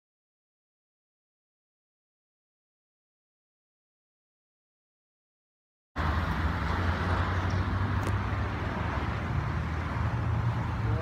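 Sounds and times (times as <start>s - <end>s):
road traffic hiss: 6.0s - 11.0s.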